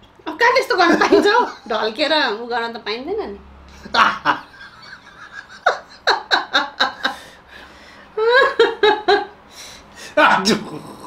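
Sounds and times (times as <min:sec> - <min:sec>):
man laughing hard: 0:03.8 - 0:07.4, 0:08.2 - 0:09.3.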